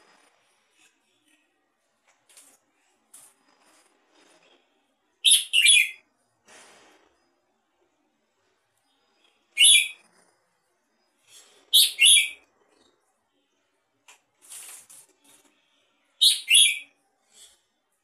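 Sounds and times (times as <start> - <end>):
faint noisy sound: 0.0 - 18.0
bird giving sharp calls: 11.7 - 12.4, 16.2 - 16.9.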